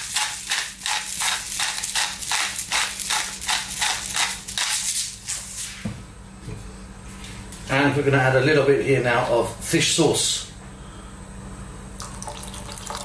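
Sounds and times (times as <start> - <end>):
pepper mill grinding: 0.0 - 5.2.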